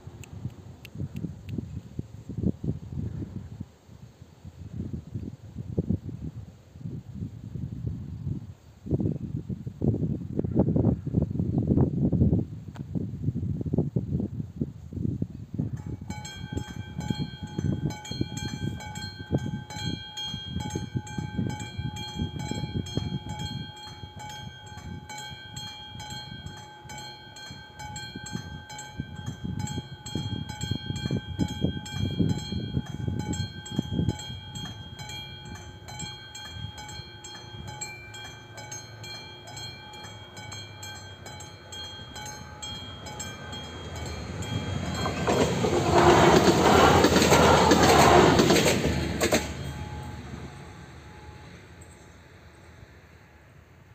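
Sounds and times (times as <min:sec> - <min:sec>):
approaching train: 0:15.4 - 0:53.9
level crossing warning bell: 0:15.8 - 0:53.7.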